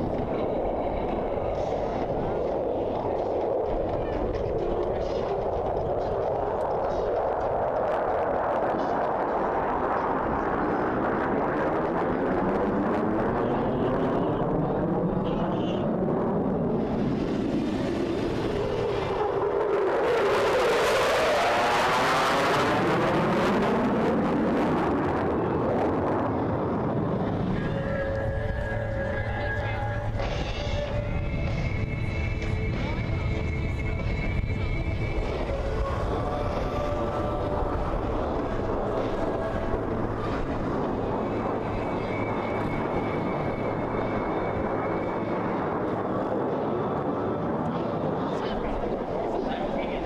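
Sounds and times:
jet flying past: 0.0 - 28.0, 28.8 - 50.0
faint high whine: 25.0 - 50.0
music: 27.2 - 47.3.

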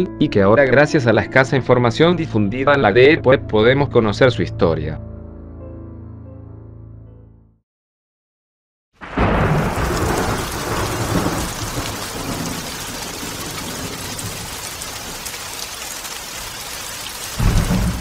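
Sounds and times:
rolling thunder: 9.0 - 15.3, 17.2 - 18.0
heavy rain: 9.0 - 18.0.

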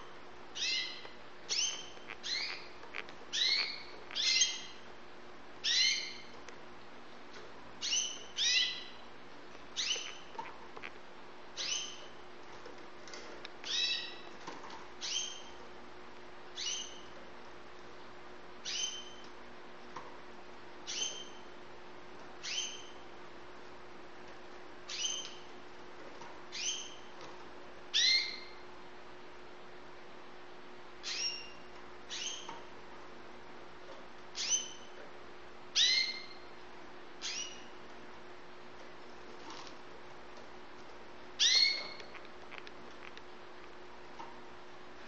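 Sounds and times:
canary call notes: 0.6 - 4.8, 35.8 - 36.5, 41.4 - 42.1.

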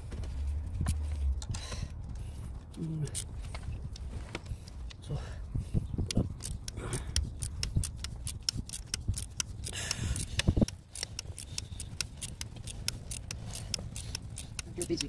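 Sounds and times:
ratchet wrench clicking: 3.0 - 5.0, 6.0 - 15.0.

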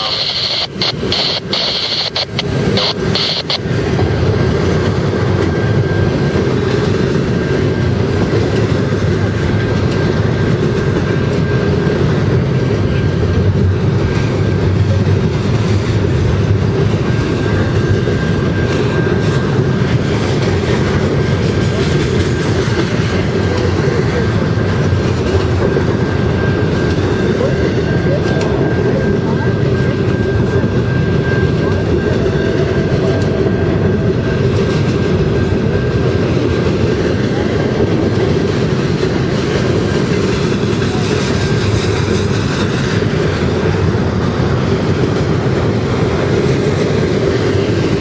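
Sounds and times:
thin high whine: 0.0 - 3.8
train wheels rumbling on rail: 0.0 - 48.0.

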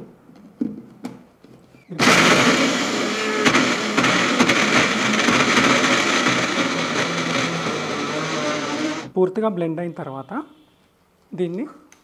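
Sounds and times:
blender grinding nuts: 2.0 - 9.1.

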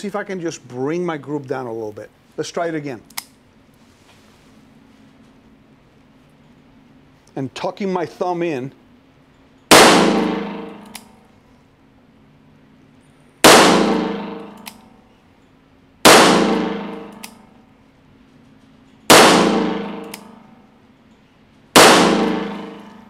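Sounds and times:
revolver shots echoing indoors: 9.6 - 11.6, 13.4 - 15.2, 16.0 - 17.7, 18.6 - 20.9, 21.7 - 23.0
light click: 20.0 - 20.3.

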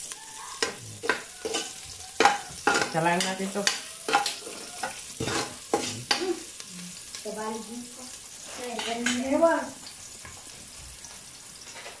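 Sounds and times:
garlic and onion sizzling in oil: 0.0 - 12.0
spatula scraping a pot: 0.5 - 6.2.

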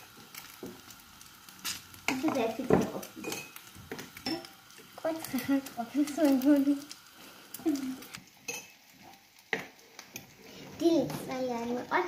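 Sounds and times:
bread sizzling in a pan: 0.0 - 12.0
child's voice: 2.1 - 3.2, 5.0 - 6.9, 10.6 - 12.0
spoon clinking in a glass jar: 3.2 - 3.6.

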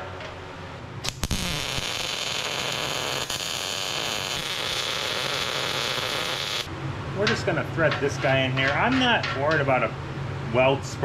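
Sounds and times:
welder arc sizzling and crackling: 1.0 - 6.7.

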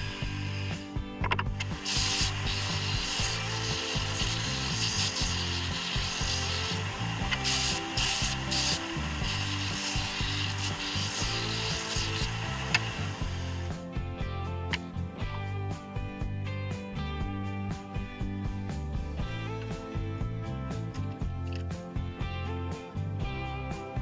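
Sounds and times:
background music with bass: 0.0 - 24.0
disc sander sanding wood: 1.8 - 13.7.

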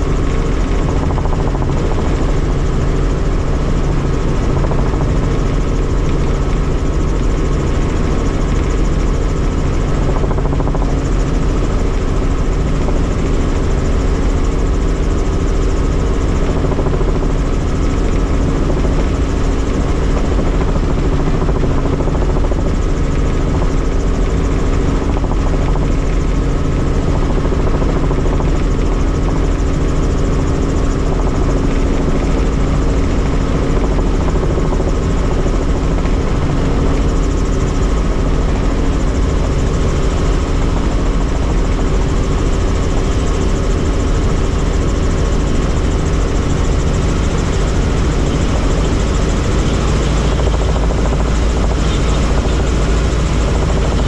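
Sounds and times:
helicopter engine and rotor: 0.0 - 54.0.

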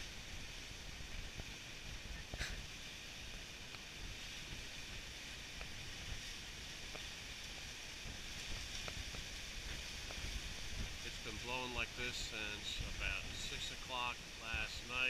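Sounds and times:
wind through palm fronds: 0.0 - 15.0
wind buffeting microphone: 3.9 - 13.8.

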